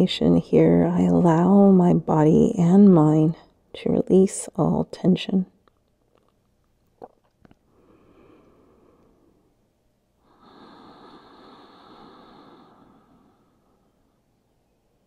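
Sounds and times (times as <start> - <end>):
woman breathing deeply: 7.7 - 9.6, 10.2 - 14.3.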